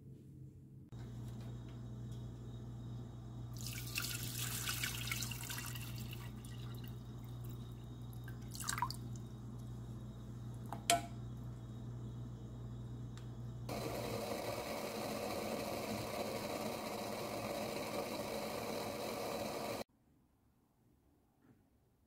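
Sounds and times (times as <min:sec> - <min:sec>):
steady low hum: 0:00.0 - 0:03.8, 0:06.2 - 0:19.8
water pouring into metal pot: 0:03.6 - 0:07.6, 0:08.4 - 0:09.1.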